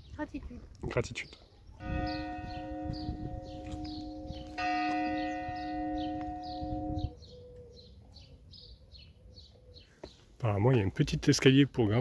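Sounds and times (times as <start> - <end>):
bird chirping: 0.0 - 10.3
church bell ringing: 1.8 - 7.2.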